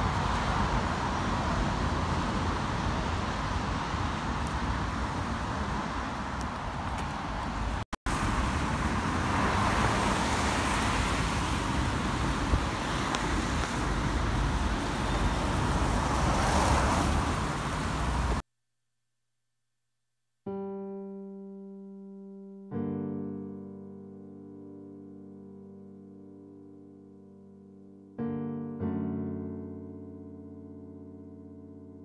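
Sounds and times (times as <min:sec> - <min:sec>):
cars passing: 0:00.0 - 0:18.4.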